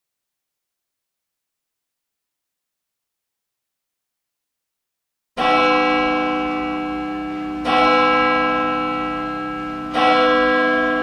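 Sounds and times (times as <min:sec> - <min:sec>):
church bell tolling: 0:05.4 - 0:11.0.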